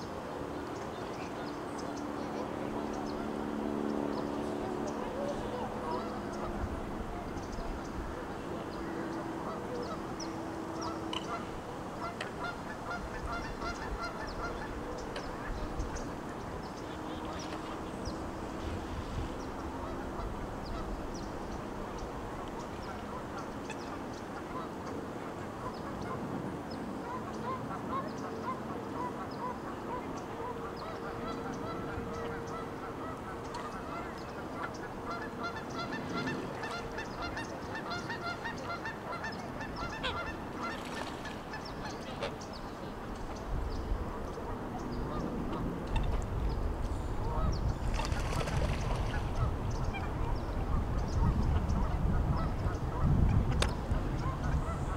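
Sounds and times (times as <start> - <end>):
steady background noise: 0.0 - 54.9
waterfowl calling: 4.0 - 16.1, 27.0 - 43.0, 54.1 - 54.9.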